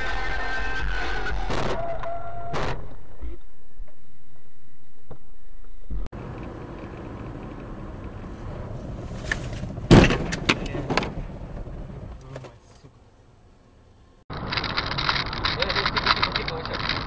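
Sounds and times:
vehicle road noise: 0.0 - 17.0
loud crash impact: 0.9 - 3.2
sharp clatters: 14.3 - 17.0.

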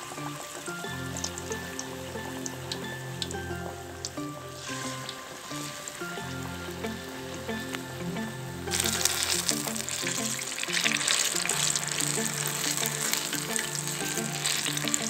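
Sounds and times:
background music: 0.0 - 15.0
batter deep-frying in oil: 8.7 - 15.0.

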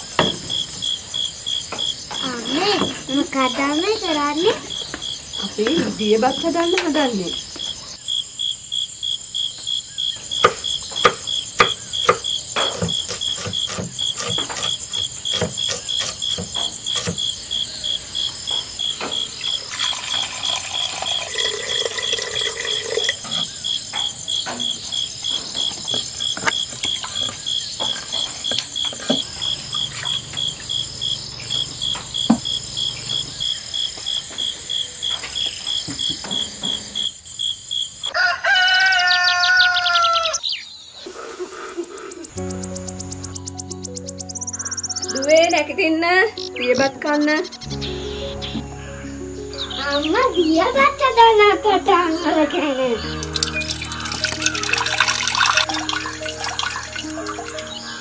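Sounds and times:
crickets chirping: 0.0 - 58.0
water pouring into a pot: 19.4 - 23.5, 53.1 - 57.9
kitchen pots and utensils clinking: 53.2 - 57.8.

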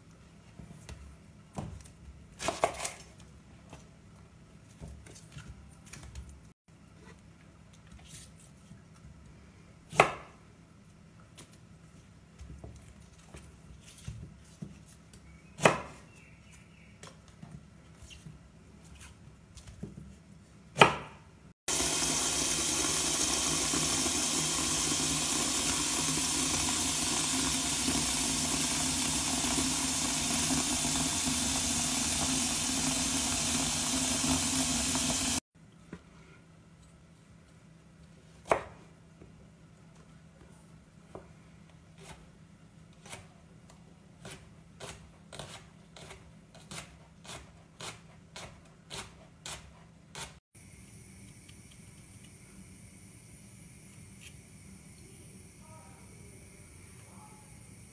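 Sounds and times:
tap water running into bowl: 21.7 - 35.4.

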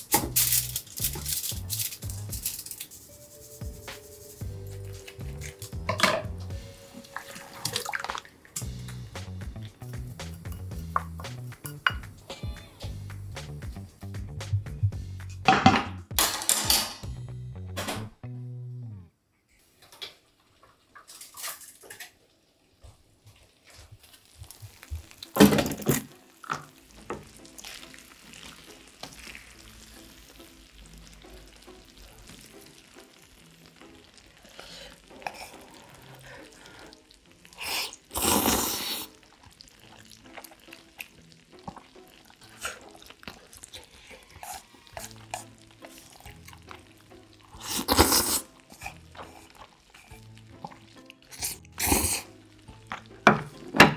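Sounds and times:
soft background music: 0.0 - 19.8, 21.1 - 53.9
chewing: 34.3 - 53.1
noodles being slurped: 34.3 - 53.1.

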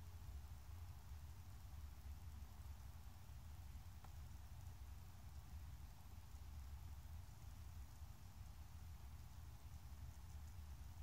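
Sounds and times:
faint hiss: 0.0 - 11.0.

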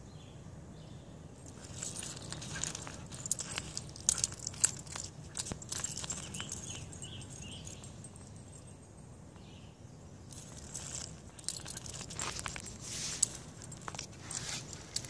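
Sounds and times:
leash dragged across asphalt: 1.4 - 8.0, 10.3 - 15.0.

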